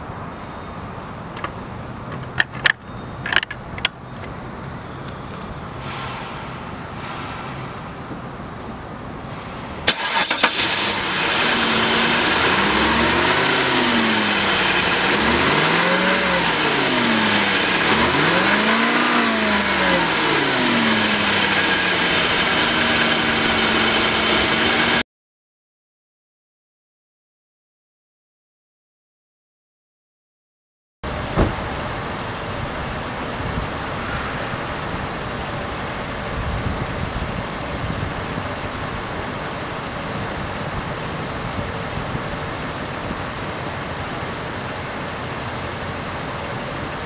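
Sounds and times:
car engine starting and revving: 0:09.8 - 0:25.0.

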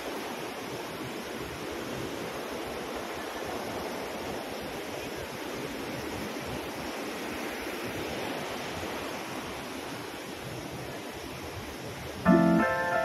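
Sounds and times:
waterfall rushing: 0:12.3 - 0:13.0.

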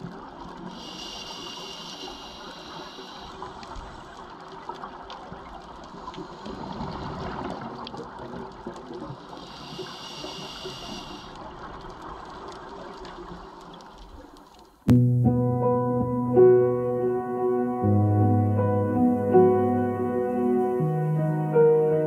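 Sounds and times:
faint clicks: 0:00.0 - 0:14.9
underwater rushing hiss: 0:00.6 - 0:04.2, 0:09.2 - 0:11.6
thin high hiss: 0:00.8 - 0:03.4, 0:09.4 - 0:11.4.

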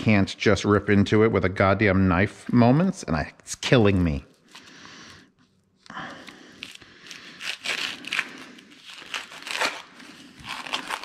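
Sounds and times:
plastic packaging crinkling and tearing: 0:06.5 - 0:11.0.

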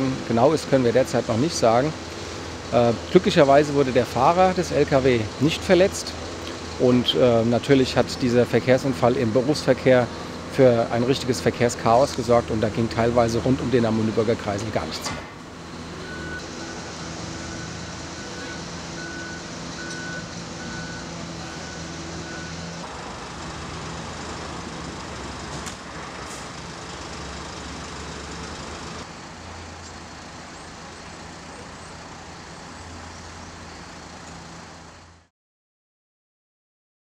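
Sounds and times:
heavy truck engines running: 0:00.0 - 0:35.3
street traffic noise: 0:00.0 - 0:35.3
truck reversing alarm beeping: 0:15.5 - 0:29.1.

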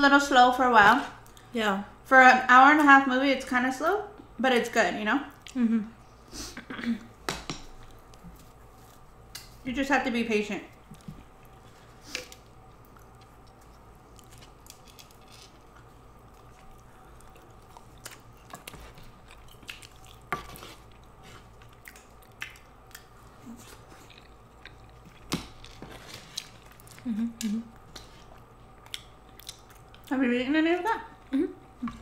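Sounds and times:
chewing and mouth clicks: 0:10.9 - 0:25.6, 0:26.2 - 0:30.1.

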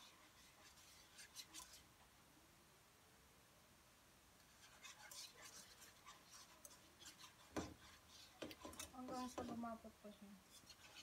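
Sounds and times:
utensil scraping a pan: 0:00.0 - 0:01.9, 0:04.4 - 0:09.6, 0:10.5 - 0:11.0.

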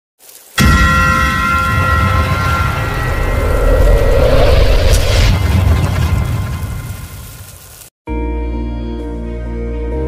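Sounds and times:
steady ringing tones: 0:00.6 - 0:05.4
sudden impact hit: 0:00.6 - 0:07.6
deep low rumble: 0:01.1 - 0:07.5.

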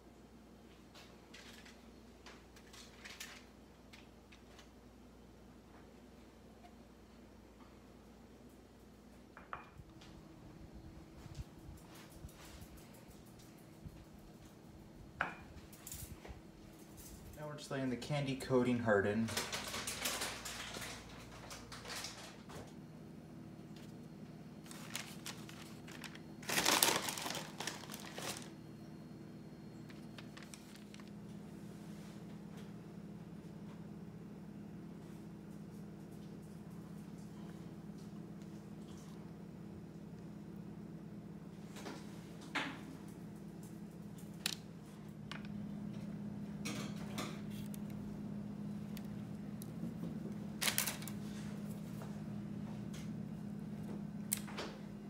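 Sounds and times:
steady low hum: 0:00.0 - 0:55.0
paper crinkling and rustling: 0:19.1 - 0:22.7, 0:23.7 - 0:28.6, 0:29.8 - 0:31.4, 0:48.9 - 0:52.0
paper rustling: 0:24.6 - 0:28.6, 0:29.8 - 0:31.2.

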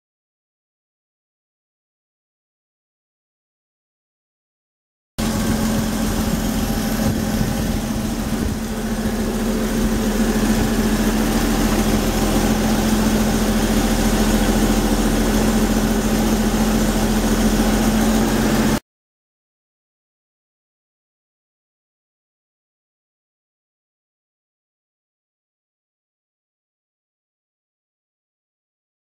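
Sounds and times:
car engine idling: 0:05.2 - 0:18.8.

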